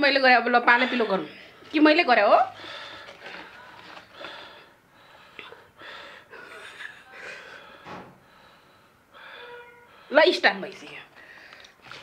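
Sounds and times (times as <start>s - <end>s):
woman laughing softly: 6.3s - 7.7s.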